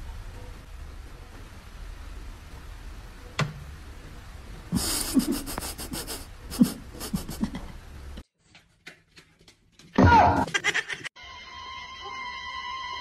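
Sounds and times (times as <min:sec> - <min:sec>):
low steady hum: 0:00.0 - 0:08.2.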